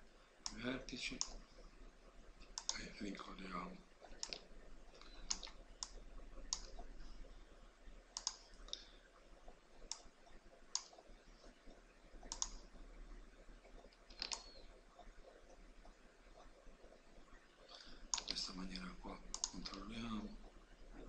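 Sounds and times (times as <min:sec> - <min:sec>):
faint low hum: 0:00.0 - 0:21.0
computer mouse clicking: 0:00.4 - 0:01.4, 0:02.4 - 0:02.9, 0:04.0 - 0:07.1, 0:08.1 - 0:12.8, 0:13.6 - 0:17.0, 0:17.7 - 0:20.1.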